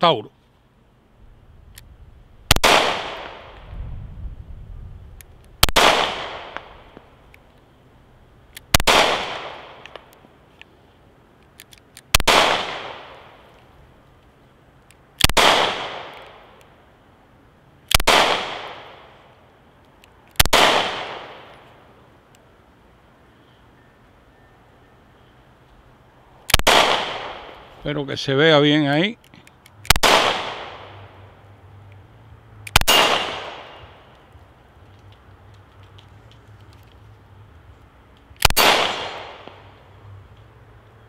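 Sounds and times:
pistol shots with echo: 2.5s - 3.6s, 5.6s - 6.8s, 8.7s - 9.9s, 12.1s - 13.3s, 15.2s - 16.4s, 17.9s - 19.0s, 20.4s - 21.5s, 26.5s - 27.6s, 29.9s - 31.0s, 32.7s - 33.9s, 38.4s - 39.6s.

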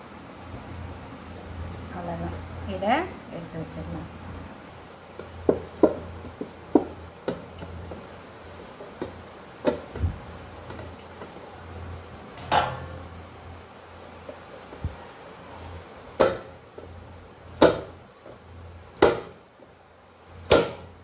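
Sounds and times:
steady low hum: 0.0s - 21.0s
dough taps on steel plate: 19.0s - 19.4s, 20.5s - 20.9s.

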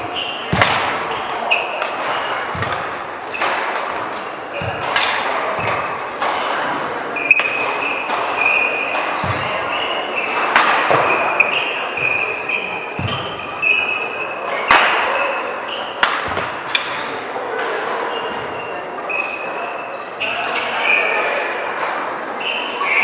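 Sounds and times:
shoes squeaking on court: 0.0s - 17.0s, 18.1s - 19.6s
racket striking shuttlecock: 0.5s - 6.6s, 7.2s - 12.1s, 14.7s - 15.2s, 16.0s - 17.1s.

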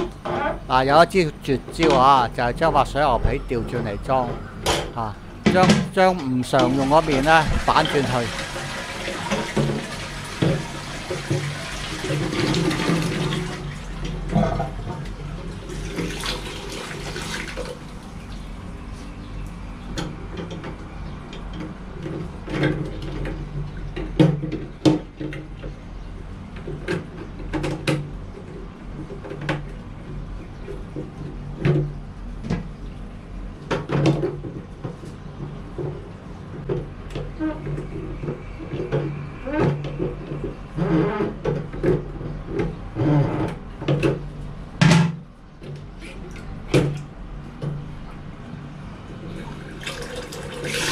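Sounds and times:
steady low hum: 0.0s - 8.5s.

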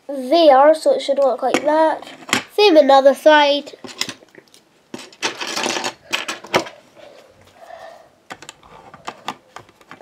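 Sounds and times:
plastic bricks rattling: 4.9s - 6.8s
plastic bricks clicking together: 5.0s - 6.7s.

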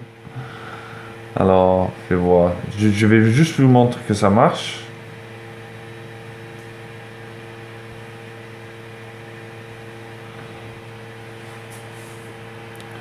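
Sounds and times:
mechanical hum with low tones: 0.0s - 13.0s.

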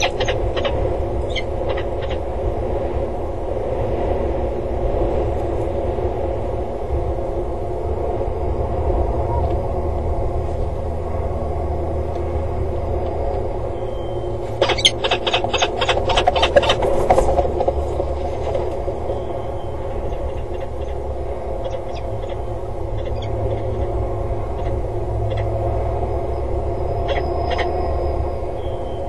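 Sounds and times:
falcon calling: 0.0s - 2.3s, 13.8s - 25.5s, 26.9s - 27.8s
steady low rumble: 0.0s - 29.0s.

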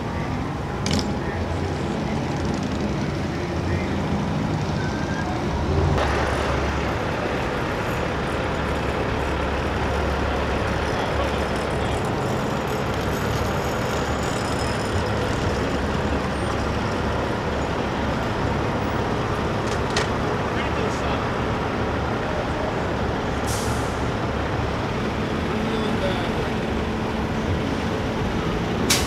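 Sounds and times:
traffic noise: 0.0s - 29.0s
truck diesel engine rumbling: 0.0s - 29.0s.

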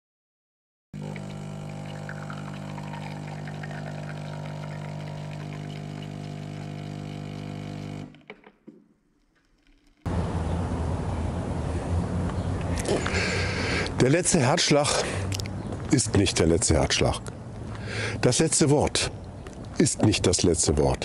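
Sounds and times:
espresso streaming into mug: 1.0s - 8.2s
espresso machine pump humming: 1.0s - 8.3s.

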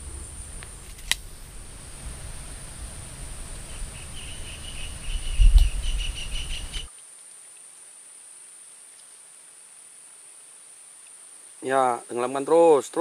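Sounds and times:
crickets droning: 0.0s - 13.0s
rapid chirping call: 2.2s - 6.9s.

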